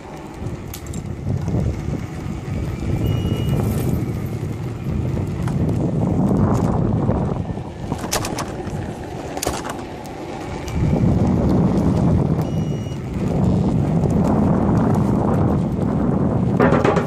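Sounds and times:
road rumble: 0.0s - 17.0s
wind buffeting microphone: 0.0s - 17.0s
short beep: 3.0s - 3.6s, 12.4s - 13.0s.

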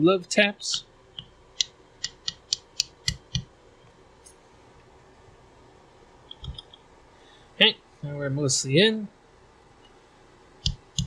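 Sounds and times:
mallet tapping a metal pin: 2.0s - 3.5s.

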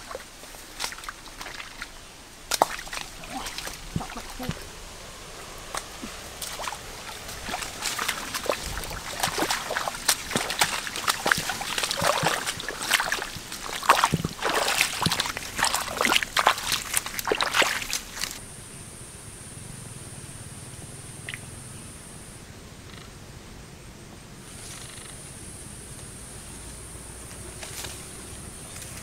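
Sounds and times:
water splashing and sloshing: 0.0s - 18.4s.

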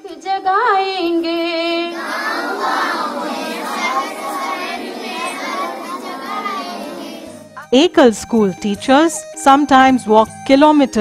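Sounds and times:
woman singing into a microphone: 0.0s - 1.9s
children singing in chorus: 1.8s - 7.5s.

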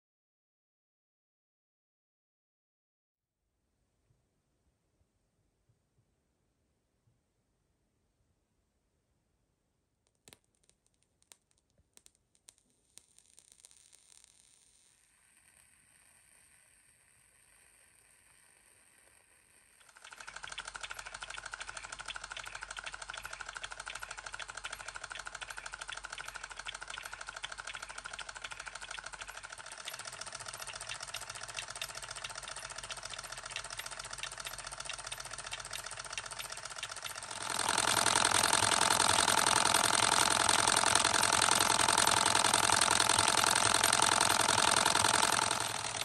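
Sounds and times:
toy engine mechanical clatter: 15.2s - 46.0s.

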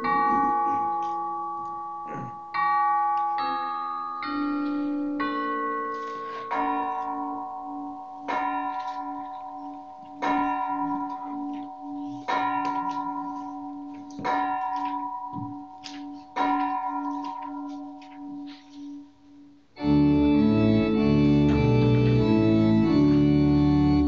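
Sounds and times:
chime tune: 0.0s - 18.9s
church bell tolling: 0.0s - 24.0s.

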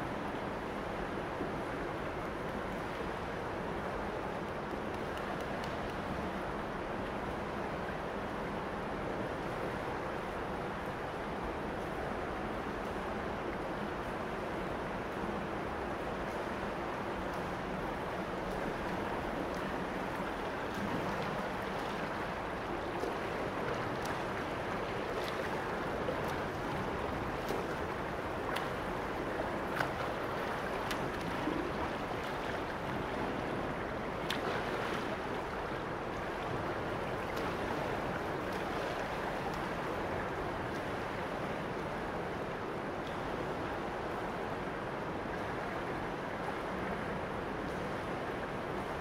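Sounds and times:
water rushing and lapping: 17.9s - 42.8s
small water splashes: 18.4s - 41.4s.

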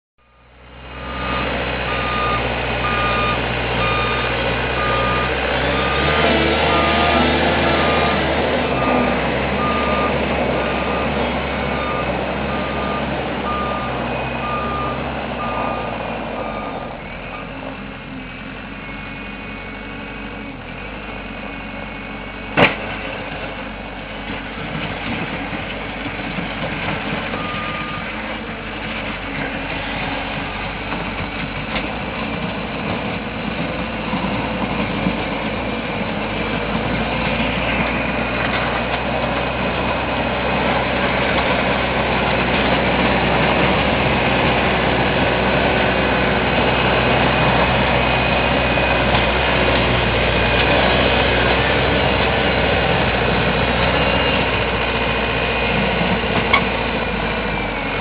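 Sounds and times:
reversing alarm beeping: 0.2s - 17.6s, 27.4s - 28.1s
diesel engine running: 0.2s - 58.0s.

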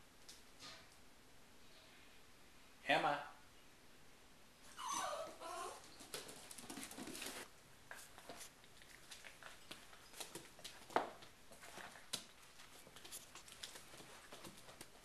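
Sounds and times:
puppy whining: 4.6s - 6.2s.

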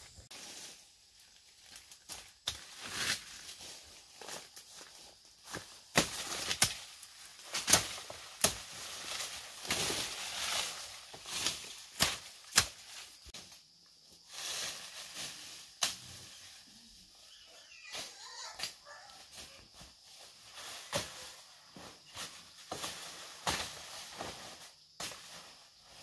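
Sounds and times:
leaves rustling and swishing: 0.0s - 26.0s
machete chopping weeds: 5.5s - 13.0s, 22.2s - 25.4s.

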